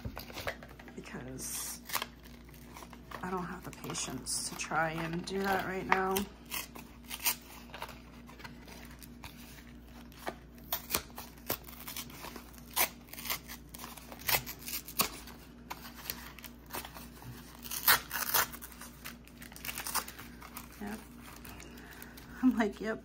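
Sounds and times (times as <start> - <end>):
faint steady hum: 0.0 - 23.0
packaging rustling: 1.8 - 22.4.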